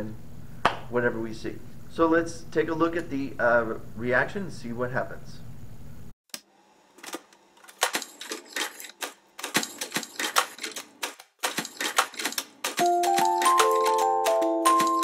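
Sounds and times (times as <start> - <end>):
typewriter keys clacking: 7.0 - 15.0
instrumental music: 12.8 - 15.0.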